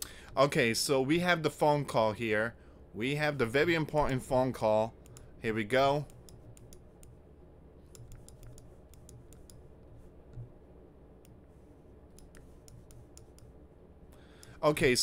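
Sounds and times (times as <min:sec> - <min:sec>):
low room hum: 0:00.0 - 0:15.0
computer mouse clicks: 0:05.0 - 0:05.3, 0:06.0 - 0:07.2, 0:07.9 - 0:10.5, 0:12.1 - 0:14.6.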